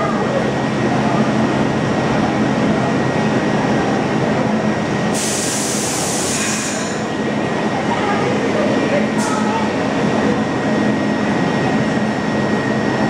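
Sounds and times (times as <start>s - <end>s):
subway train equipment humming: 0.0s - 13.0s
air hiss burst: 5.2s - 6.9s.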